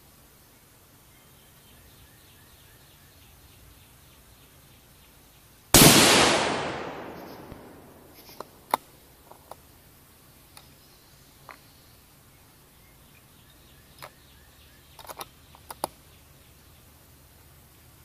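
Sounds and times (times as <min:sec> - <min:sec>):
rifle shot with echo: 0:05.8 - 0:08.2.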